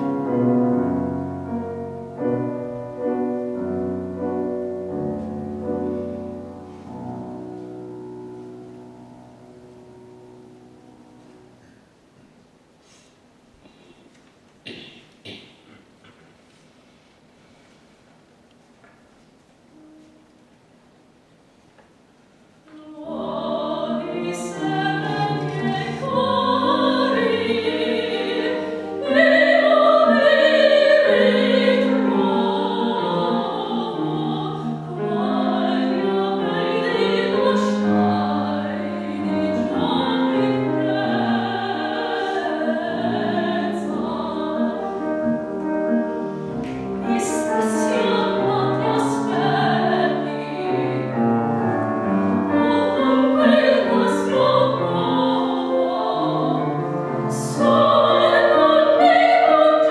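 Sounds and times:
grand piano: 0.0s - 59.9s
woman singing classical song: 22.6s - 45.6s, 46.8s - 51.4s, 52.3s - 59.9s.

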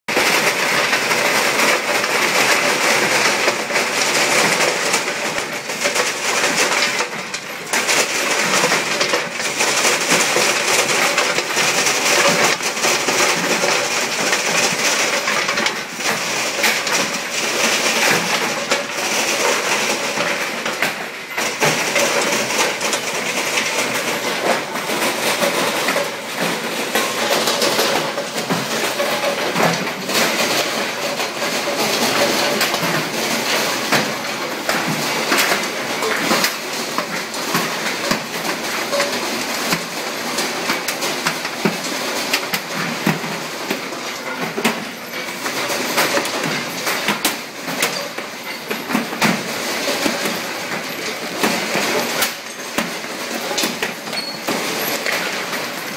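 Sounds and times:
conveyor belts running: 0.1s - 55.9s.

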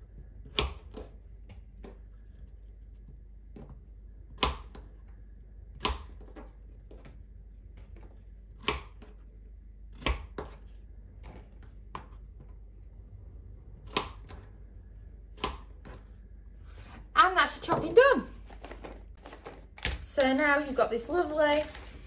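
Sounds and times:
knife chopping on wooden board: 4.3s - 4.9s, 5.7s - 6.4s, 8.6s - 9.2s, 9.9s - 12.5s, 13.8s - 14.5s, 15.3s - 16.1s.

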